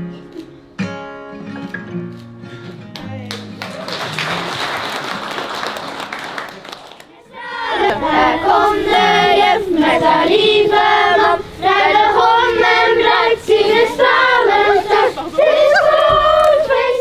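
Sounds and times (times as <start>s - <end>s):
children singing: 7.2s - 17.0s.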